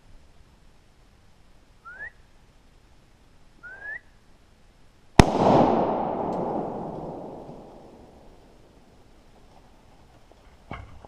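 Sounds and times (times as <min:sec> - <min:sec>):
short rising whistles: 0:01.8 - 0:02.2, 0:03.6 - 0:04.2
echoing rifle shot: 0:05.2 - 0:08.9.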